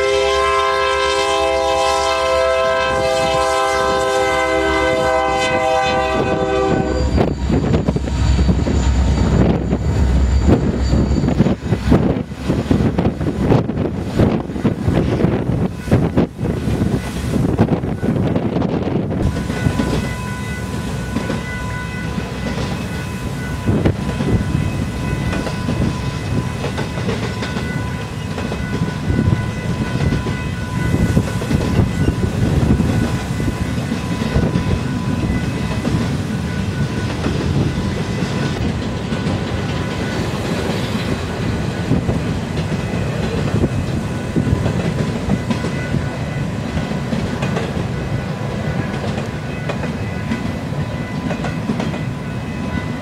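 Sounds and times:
freight train rumbling past: 0.0s - 53.0s
thin high tone: 6.6s - 11.9s, 19.2s - 26.7s
wheels clacking over rail joints: 16.4s - 52.7s.

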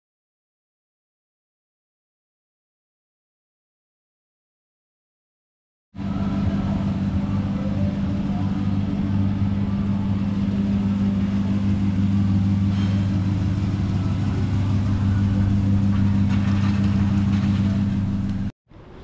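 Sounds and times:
vehicle engine running: 6.0s - 18.5s.

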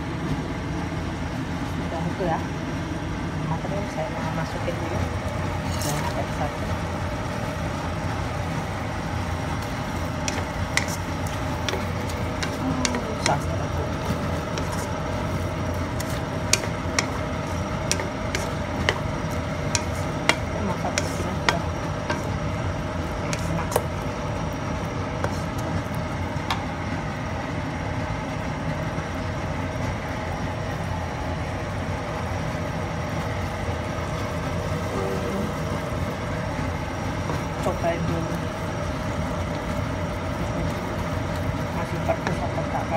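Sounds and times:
steady hum: 0.0s - 42.9s
spatula scraping a wok: 5.6s - 6.3s, 9.7s - 22.4s, 23.2s - 23.9s, 25.2s - 25.6s.

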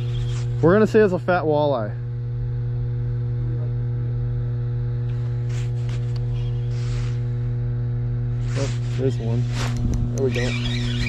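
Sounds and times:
low electrical hum: 0.0s - 11.0s
faint rustle: 5.2s - 7.3s, 8.4s - 9.8s.

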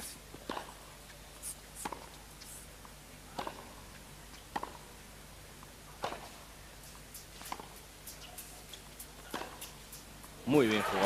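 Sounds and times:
faint broadcast hum: 0.0s - 11.0s
tennis ball bouncing on hard court: 0.3s - 0.8s, 1.8s - 2.1s, 3.3s - 3.8s, 4.4s - 4.9s, 6.0s - 6.4s, 7.2s - 9.8s.

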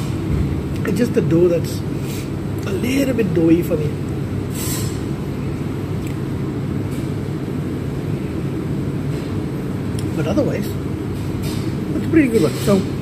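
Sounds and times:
low rumbling hum: 0.0s - 13.0s.

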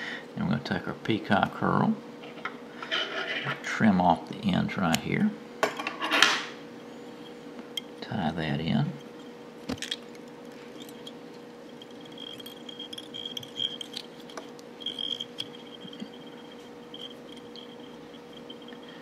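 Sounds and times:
steady hum: 0.0s - 19.0s
faint high whine: 6.8s - 19.0s
fingers and bobbin clicking: 9.8s - 19.0s.

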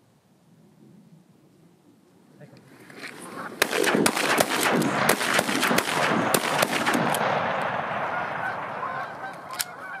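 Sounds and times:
shotgun shots: 3.6s - 9.7s
geese honking: 8.0s - 10.0s.

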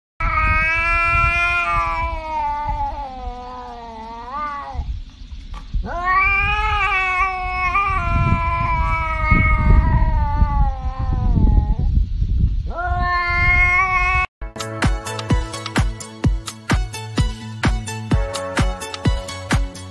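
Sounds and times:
cat yowling: 0.2s - 4.9s, 5.8s - 11.9s, 12.7s - 14.3s.

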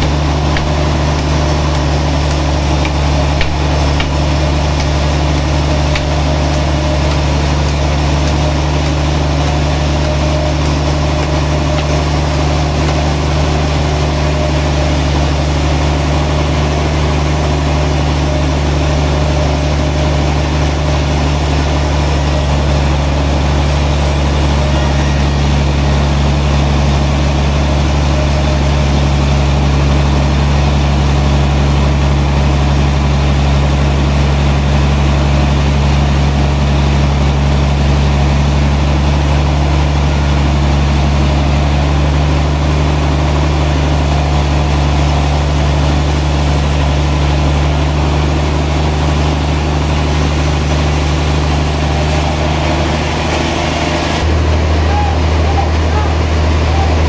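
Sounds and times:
saw blade cutting log: 0.0s - 15.5s
band sawmill humming: 0.0s - 57.0s.

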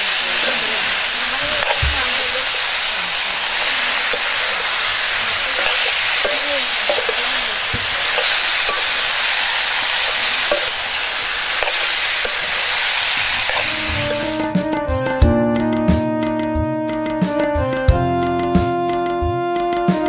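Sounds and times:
vegetables sizzling in wok: 0.0s - 15.1s
metal ladle scraping pan: 3.5s - 14.5s
music: 13.4s - 20.0s.

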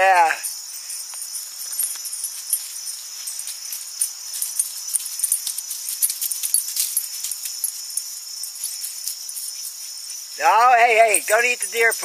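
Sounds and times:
insects chirring: 0.0s - 12.0s
metallic jingling and ticking: 0.0s - 12.0s.

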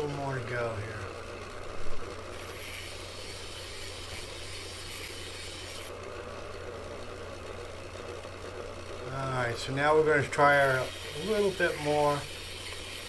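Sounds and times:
bench grinder humming: 0.0s - 13.0s
metal bit grinding on stone: 2.3s - 5.9s, 10.5s - 13.0s.

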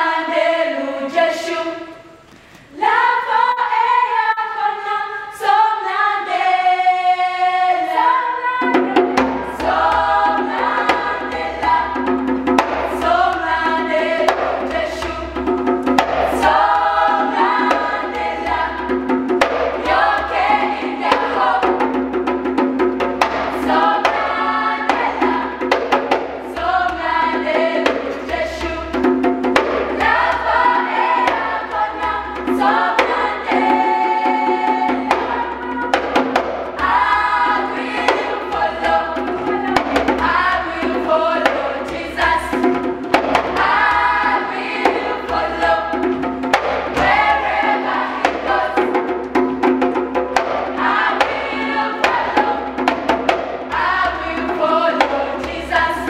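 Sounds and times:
children's choir singing: 0.0s - 22.3s, 23.2s - 56.0s
light rhythmic percussion: 8.6s - 56.0s.

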